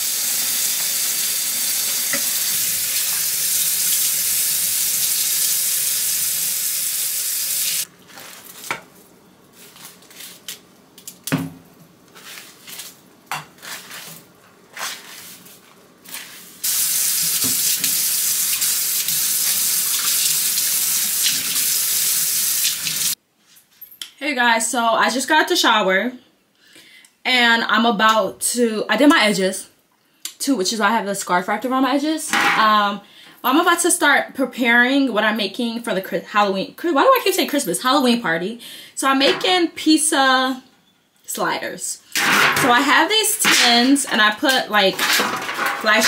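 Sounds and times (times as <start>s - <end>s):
faucet running: 0.0s - 7.9s, 16.6s - 23.2s.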